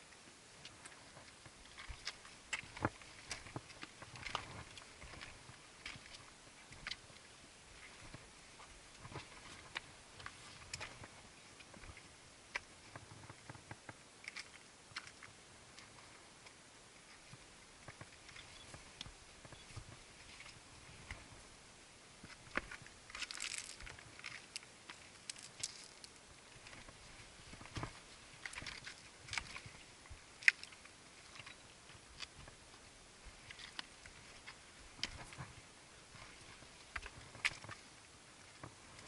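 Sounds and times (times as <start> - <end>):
footsteps crunching on rock: 22.4 - 24.0.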